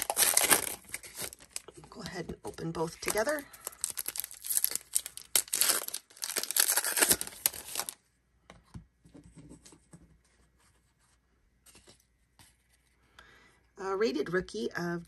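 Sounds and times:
wrappers tearing and crinkling: 0.0 - 1.6, 3.0 - 8.0
cards rustling and clicking: 3.0 - 8.0.

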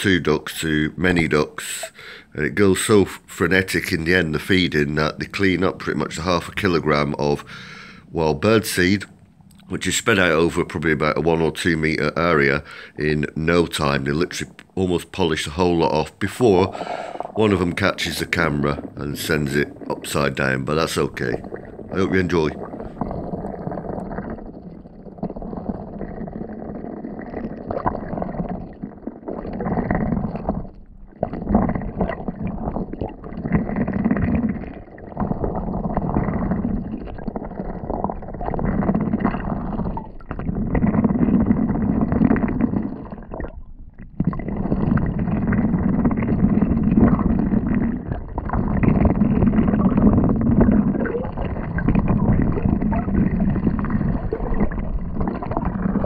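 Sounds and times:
water gurgling: 0.0 - 56.0
muffled underwater sloshing: 15.2 - 56.0.

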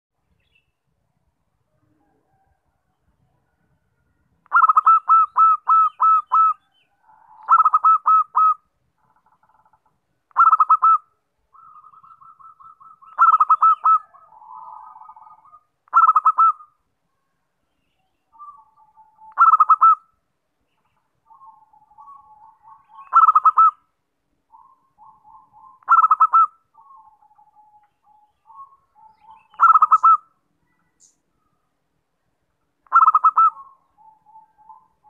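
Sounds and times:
dove cooing: 4.5 - 8.6, 10.4 - 16.7, 18.4 - 20.0, 21.3 - 23.8, 24.5 - 30.3, 32.9 - 35.0.

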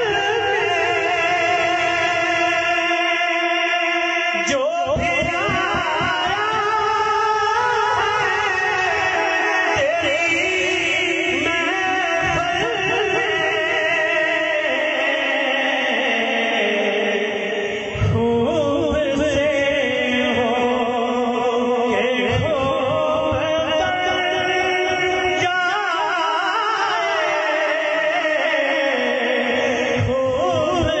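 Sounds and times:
man singing into a microphone: 0.0 - 31.0
low accompaniment thumps: 4.8 - 14.3.

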